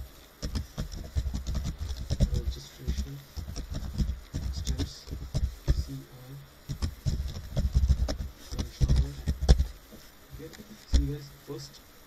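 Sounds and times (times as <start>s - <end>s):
computer keyboard typing: 0.4s - 5.9s.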